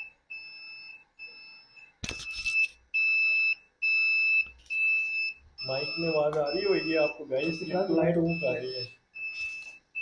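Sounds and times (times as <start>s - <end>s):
turn signal beeping: 3.0s - 10.0s.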